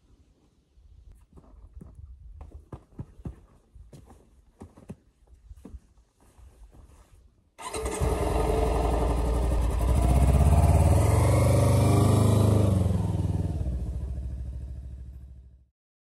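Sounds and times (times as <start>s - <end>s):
motorcycle engine pulling away: 7.6s - 15.6s.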